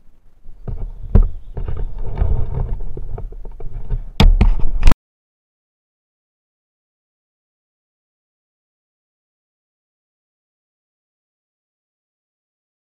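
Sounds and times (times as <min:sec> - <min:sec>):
rubbing and scraping on microphone: 0:00.4 - 0:05.0
sharp knocks: 0:04.2 - 0:05.0.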